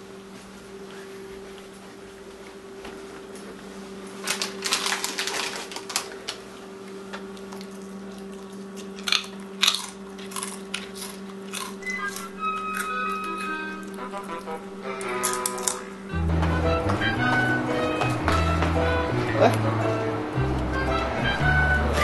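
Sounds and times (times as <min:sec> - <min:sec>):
crunchy chip bites: 0:04.2 - 0:06.4, 0:07.4 - 0:15.9
chip bag crinkling: 0:04.2 - 0:06.5, 0:07.4 - 0:15.9
steady low hum: 0:05.8 - 0:22.0.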